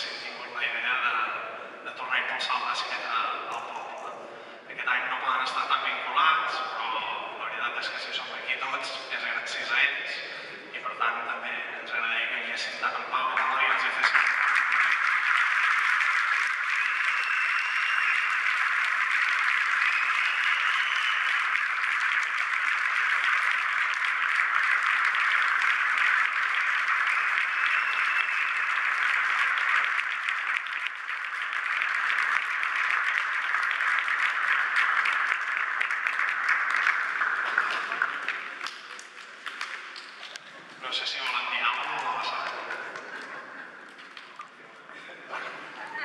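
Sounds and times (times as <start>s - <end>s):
audience applauding: 13.4s - 40.4s, 41.2s - 44.5s.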